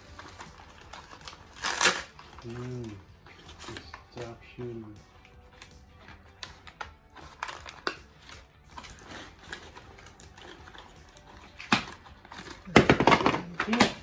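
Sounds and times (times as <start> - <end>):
plastic bags rustling: 0.0 - 4.8.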